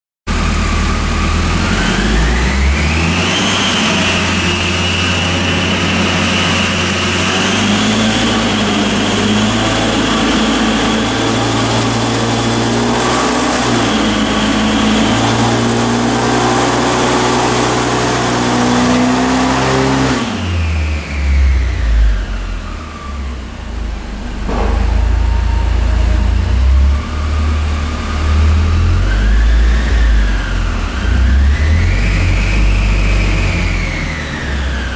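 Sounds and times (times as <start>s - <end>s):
car engine revving at full throttle: 0.3s - 34.9s
high steady whine: 21.6s - 34.9s.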